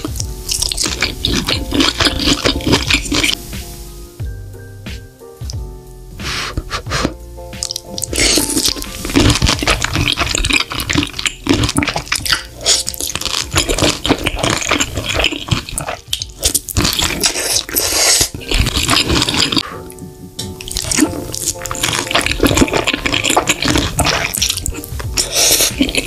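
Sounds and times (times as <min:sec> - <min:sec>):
slurping and chewing noodles: 0:00.0 - 0:03.4, 0:06.3 - 0:19.8, 0:20.6 - 0:26.0
mouth smacking: 0:06.3 - 0:19.9.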